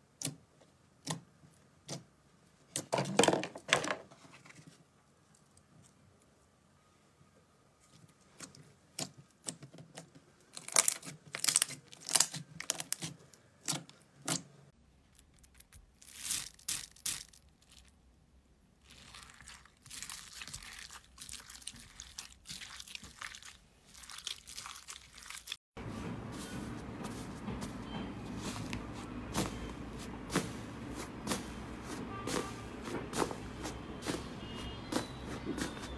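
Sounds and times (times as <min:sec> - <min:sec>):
foam beads crunching in slime: 0:10.6 - 0:13.1, 0:15.1 - 0:18.0, 0:18.8 - 0:25.6.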